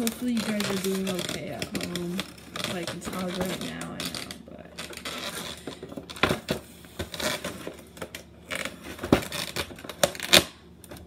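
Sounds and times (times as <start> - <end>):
cardboard box scraping and crinkling: 0.0 - 10.3.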